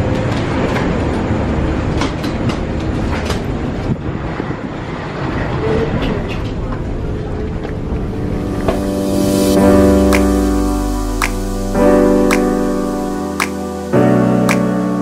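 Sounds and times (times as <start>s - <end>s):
steady low rumble: 6.5s - 14.1s.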